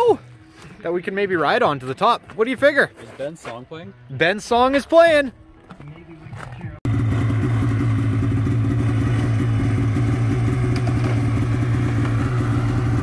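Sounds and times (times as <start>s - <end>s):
snowmobile engine idling: 6.9s - 13.0s.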